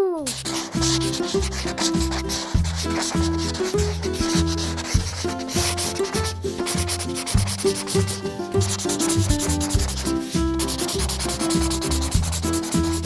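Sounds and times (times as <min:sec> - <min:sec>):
light tune with plodding bass: 0:00.1 - 0:13.0
crayon scribbling on paper: 0:00.2 - 0:13.0.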